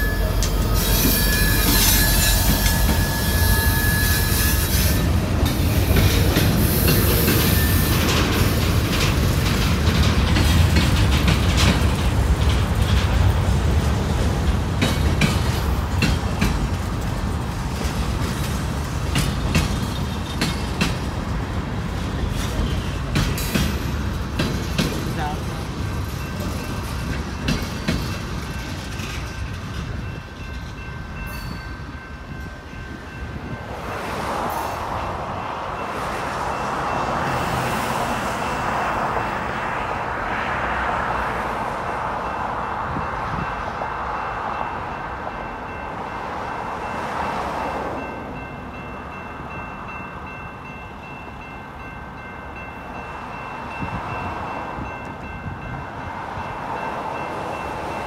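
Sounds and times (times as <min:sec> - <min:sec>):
railroad crossing signal ringing: 0:00.0 - 0:58.0.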